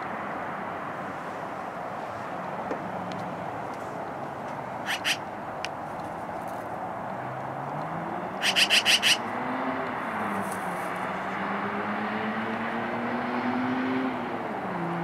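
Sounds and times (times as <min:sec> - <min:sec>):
traffic hum: 0:00.0 - 0:15.0
vehicle engine: 0:00.0 - 0:15.0
magpie chattering: 0:04.8 - 0:05.3, 0:08.4 - 0:09.2.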